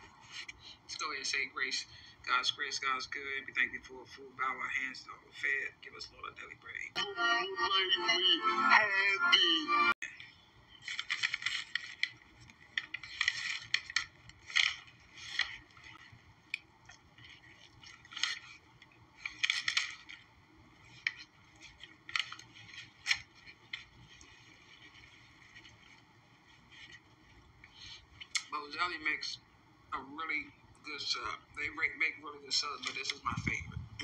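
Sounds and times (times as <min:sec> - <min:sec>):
paper wrapper rustling: 0:10.7 - 0:28.1
chewing sandwich: 0:10.8 - 0:28.5.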